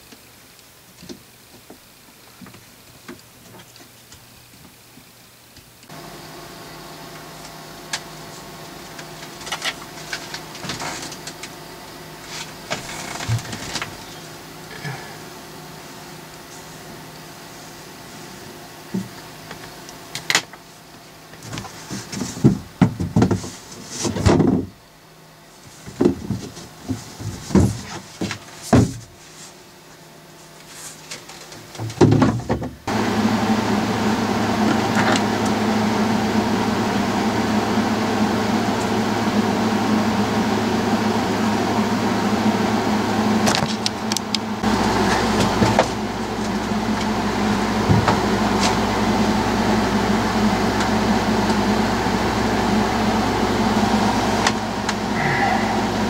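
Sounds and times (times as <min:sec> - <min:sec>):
steady mechanical hum: 0:00.0 - 0:56.0
deeper drone: 0:05.9 - 0:17.7, 0:32.9 - 0:56.0.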